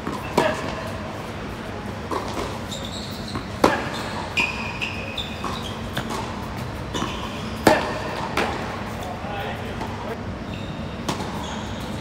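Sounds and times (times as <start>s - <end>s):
tennis ball bouncing: 0.0s - 0.9s, 2.0s - 9.0s, 11.0s - 11.5s
racquet hitting tennis ball: 0.0s - 1.0s, 2.0s - 4.8s, 5.4s - 9.0s, 11.0s - 11.5s
shoe squeaks on court: 2.1s - 7.8s, 10.4s - 12.0s.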